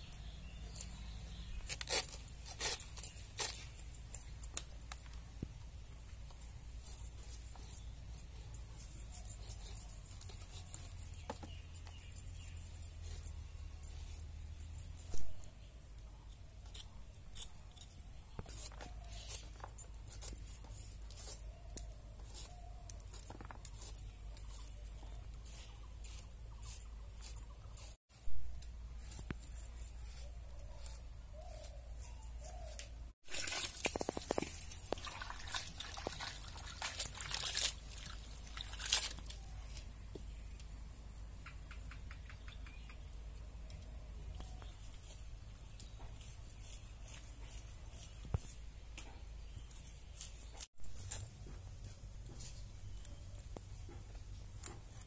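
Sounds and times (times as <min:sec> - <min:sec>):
water trickling from a hand pump: 0:33.2 - 0:39.5.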